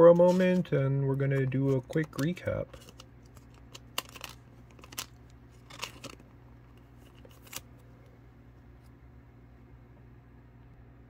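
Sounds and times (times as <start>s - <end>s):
plastic card sleeve crinkling: 0.0s - 7.9s.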